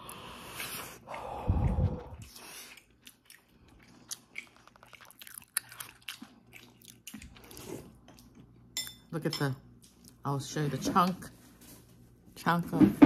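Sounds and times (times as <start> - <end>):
wet chewing: 0.1 - 8.7.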